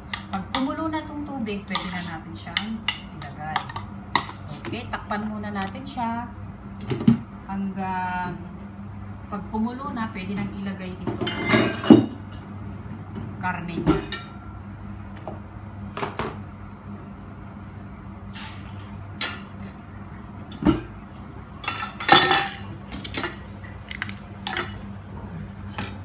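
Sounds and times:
steady low hum: 0.0 - 26.0
pots and utensils clinking: 21.6 - 24.8.

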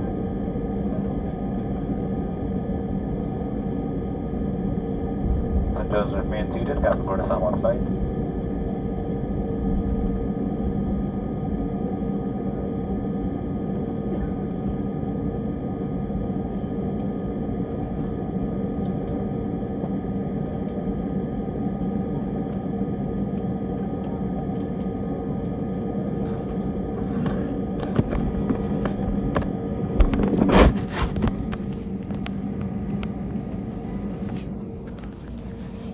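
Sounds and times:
airliner cabin hum: 0.0 - 35.9.

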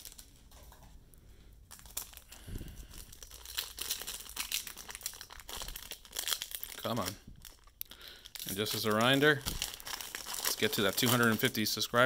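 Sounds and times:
foil wrapper crinkling and tearing: 0.0 - 0.6, 1.7 - 12.0.

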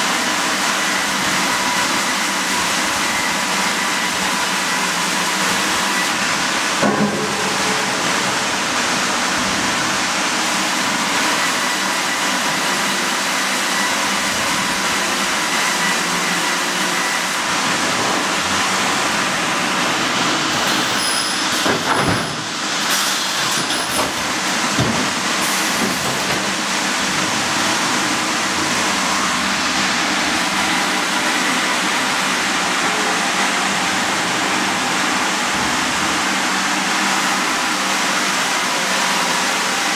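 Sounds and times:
sawmill machinery running: 0.0 - 39.9.

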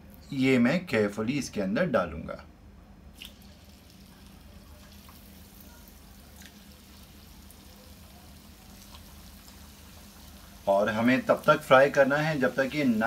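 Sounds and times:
food deep-frying in oil: 3.2 - 13.0.

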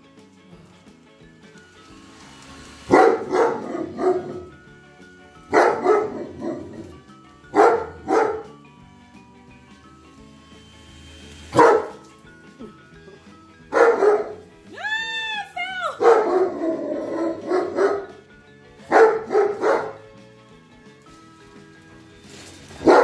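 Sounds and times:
soft background music: 0.0 - 23.0
large dogs barking: 2.9 - 4.6, 5.5 - 8.6, 11.5 - 12.1, 13.7 - 14.5, 16.0 - 18.2, 18.9 - 20.0, 22.8 - 23.0.

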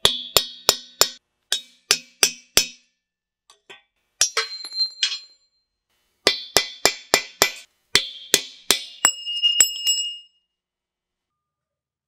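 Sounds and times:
hammer striking steel punch: 0.0 - 2.9, 6.2 - 10.0.

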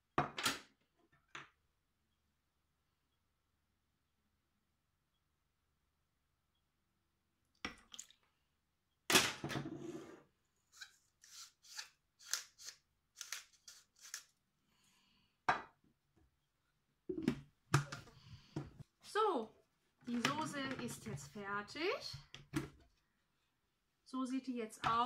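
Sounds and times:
hand grinder grinding: 10.7 - 14.3.

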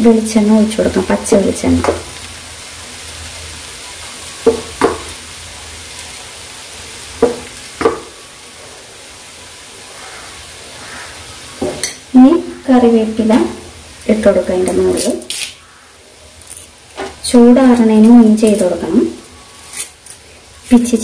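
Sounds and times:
faint sizzle: 0.0 - 21.0
spoon knocking against pan: 4.4 - 5.1, 7.2 - 8.1.

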